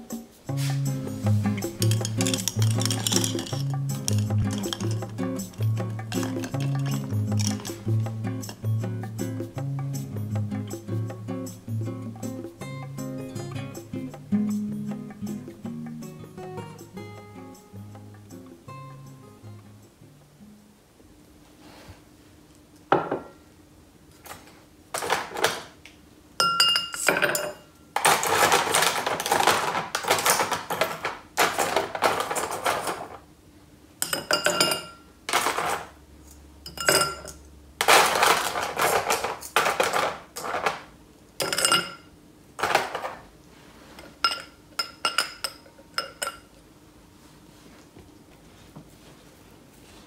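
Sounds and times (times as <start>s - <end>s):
ice cubes clinking in a glass: 1.7s - 7.8s, 34.0s - 35.9s, 41.4s - 43.1s
ice rattling: 1.7s - 7.8s.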